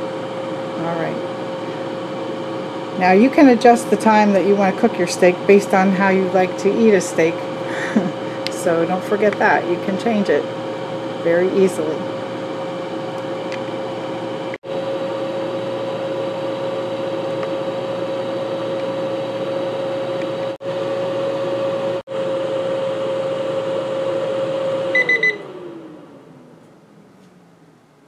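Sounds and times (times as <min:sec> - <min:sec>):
air fryer fan hum: 0:00.0 - 0:28.0
timer beeps: 0:25.0 - 0:25.4.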